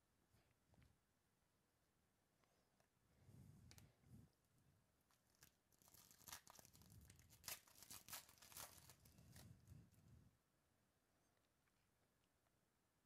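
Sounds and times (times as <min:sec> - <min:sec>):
foil wrapper tearing and crinkling: 0:05.2 - 0:09.4.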